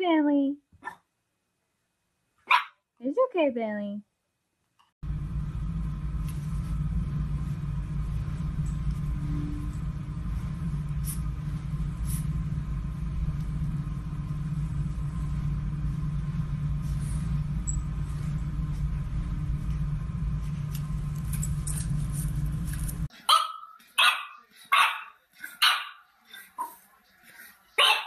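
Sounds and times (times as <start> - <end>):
puppy barking sharply: 2.4 - 2.8, 23.2 - 26.0, 27.8 - 28.0
steady low hum: 5.0 - 23.1.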